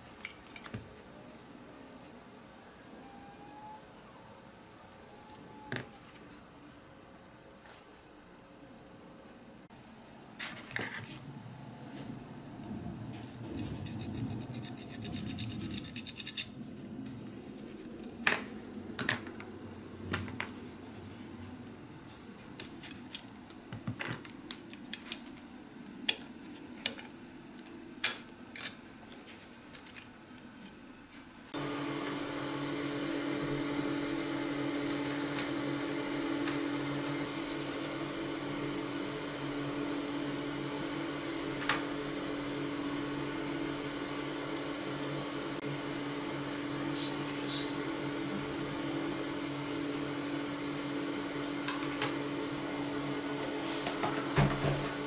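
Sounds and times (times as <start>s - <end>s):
steady mechanical hum: 0.0s - 55.0s
metal toy scratching and rubbing: 13.4s - 16.6s.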